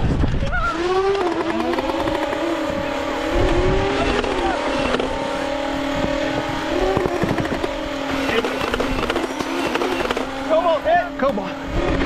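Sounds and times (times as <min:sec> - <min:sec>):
steady motor whine: 0:00.0 - 0:12.0
sharp clicks: 0:01.1 - 0:02.5, 0:04.0 - 0:05.2, 0:06.9 - 0:10.4.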